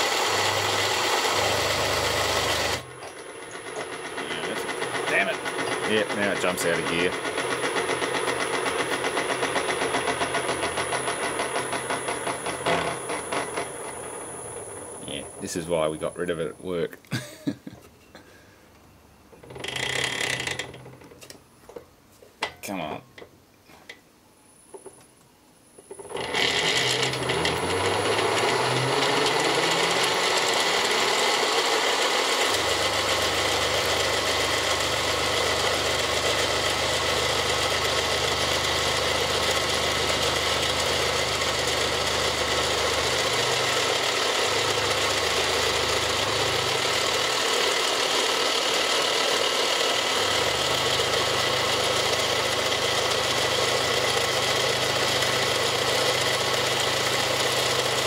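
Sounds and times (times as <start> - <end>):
milling machine cutting plastic: 0.0 - 16.2, 19.4 - 21.1, 25.8 - 58.0.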